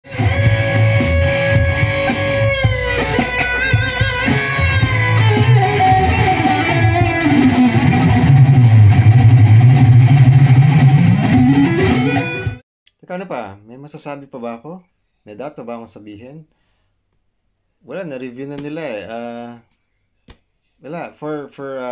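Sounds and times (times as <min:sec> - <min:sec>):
electric guitar through an amp: 0:00.0 - 0:12.6.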